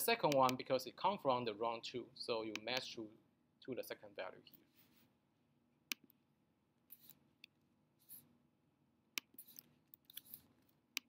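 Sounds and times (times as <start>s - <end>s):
soft scratchy rustles: 4.5s - 5.2s.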